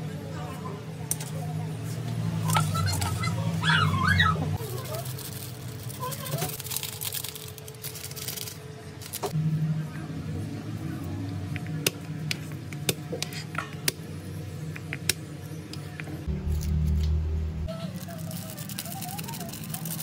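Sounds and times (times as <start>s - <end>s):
low steady hum: 4.5s - 19.6s.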